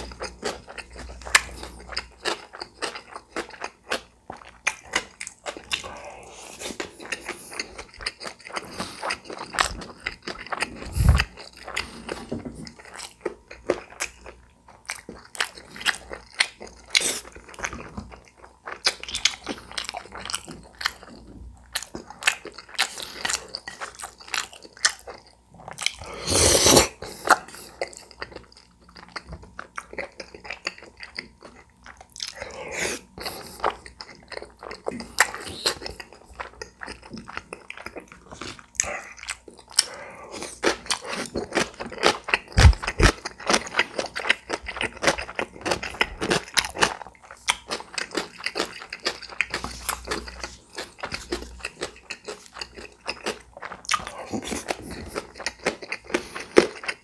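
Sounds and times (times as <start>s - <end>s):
biting and chewing: 0.0s - 26.1s, 27.0s - 57.0s.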